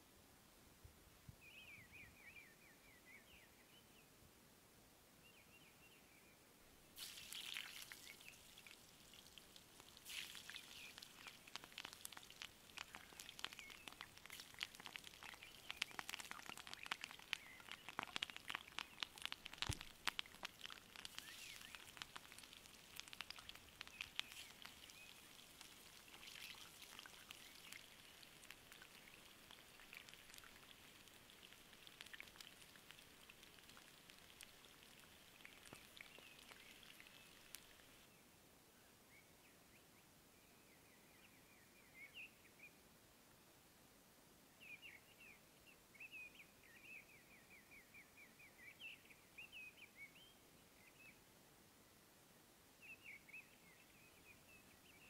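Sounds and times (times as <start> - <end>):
potatoes frying in oil: 7.0 - 38.0.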